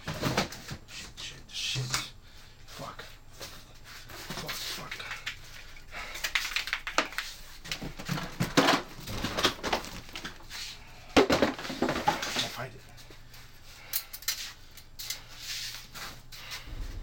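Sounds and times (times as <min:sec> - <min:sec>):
objects rustling and clattering: 0:00.0 - 0:00.9, 0:02.7 - 0:17.0
loud knocks: 0:16.7 - 0:17.0.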